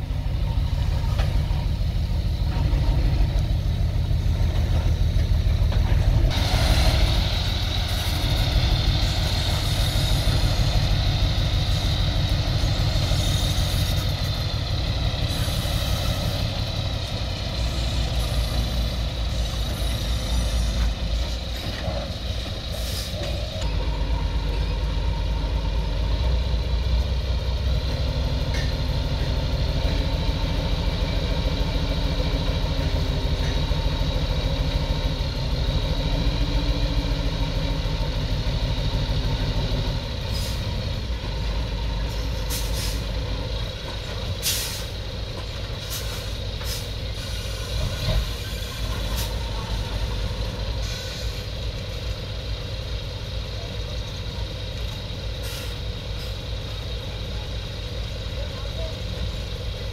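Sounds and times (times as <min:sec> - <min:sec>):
heavy diesel engine working: 0:00.0 - 0:59.9
short hissing bursts of air: 0:44.4 - 0:45.0.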